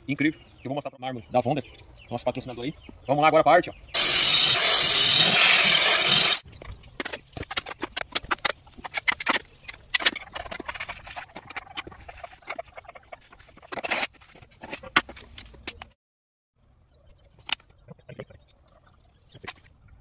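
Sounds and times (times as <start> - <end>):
angle grinder cutting wall: 4.0 - 6.4
trowel scraping mortar: 4.0 - 6.4, 10.0 - 15.4.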